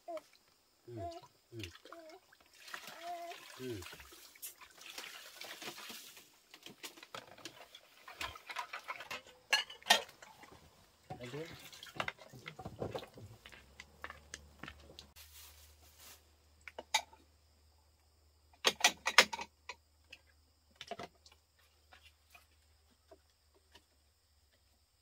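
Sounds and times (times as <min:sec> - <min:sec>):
ceramic bowls clinking: 0:08.3 - 0:10.2.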